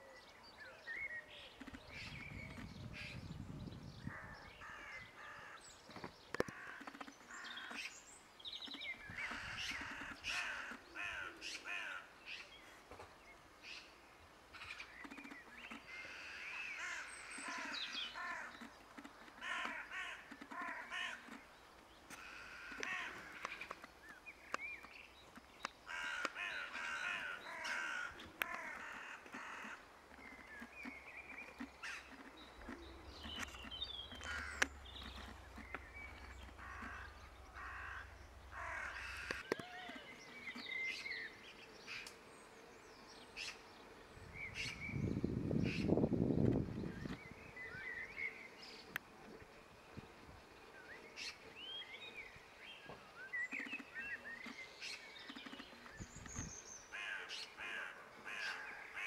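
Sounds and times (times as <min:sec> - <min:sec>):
birds chirping: 0:00.0 - 0:59.0
crows cawing: 0:04.1 - 0:05.6, 0:06.4 - 0:07.9, 0:09.1 - 0:12.1, 0:15.8 - 0:18.7, 0:19.4 - 0:21.4, 0:22.1 - 0:23.8, 0:25.9 - 0:29.8, 0:33.4 - 0:40.0, 0:56.9 - 0:59.0.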